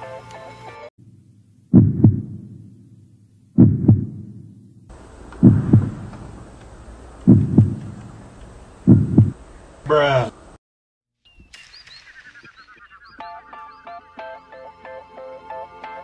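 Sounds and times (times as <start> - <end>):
heartbeat thumps: 1.7 - 2.7, 3.6 - 4.5, 5.4 - 6.4, 7.2 - 8.2, 8.8 - 9.4.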